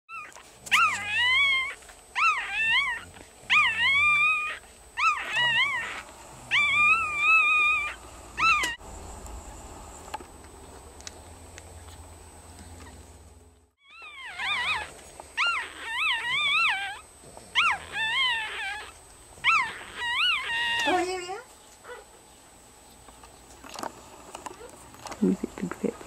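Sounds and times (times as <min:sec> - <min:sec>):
puppy crying: 0:00.1 - 0:08.8, 0:13.8 - 0:22.2
faint hum: 0:00.1 - 0:26.0.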